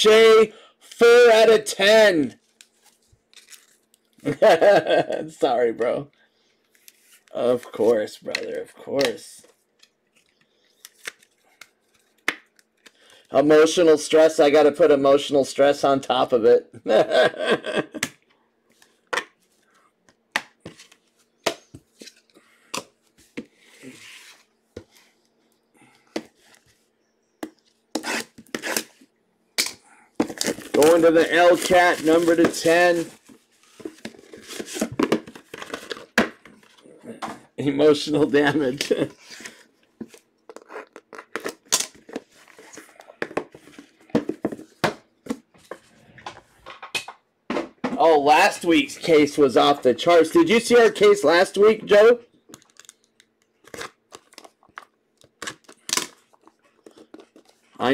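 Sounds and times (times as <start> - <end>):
cards rustling: 2.4 - 4.3, 30.2 - 36.8, 52.5 - 57.9
plastic shrink wrap crackling: 30.3 - 33.3.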